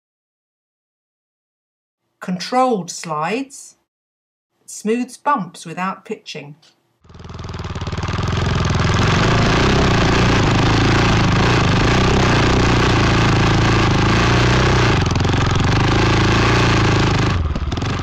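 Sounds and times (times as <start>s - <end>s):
motorcycle engine running: 7.0s - 18.0s.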